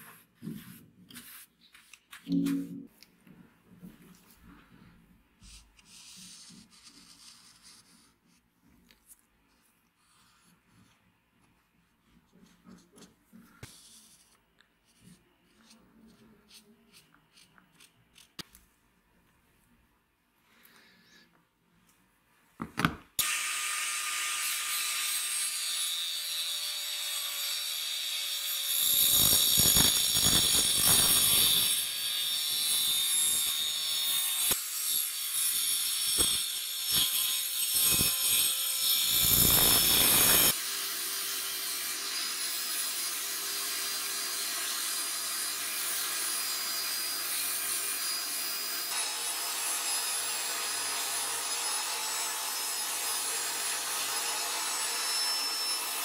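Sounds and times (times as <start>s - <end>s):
power tool cutting wood: 23.2s - 56.0s.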